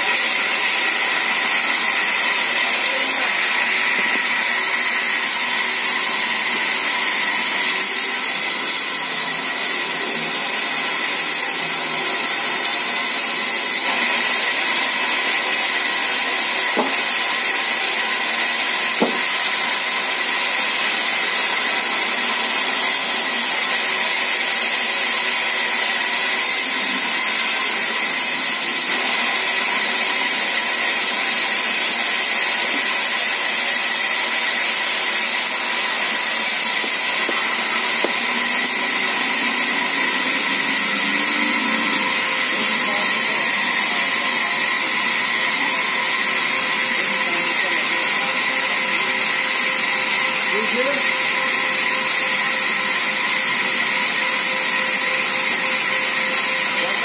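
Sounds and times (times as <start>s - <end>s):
band saw cutting log: 0.0s - 57.0s.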